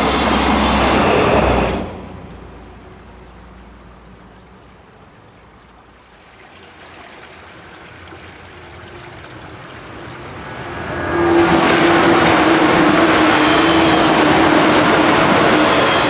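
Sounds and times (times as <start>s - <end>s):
electric train approaching: 0.0s - 2.7s, 7.6s - 16.0s.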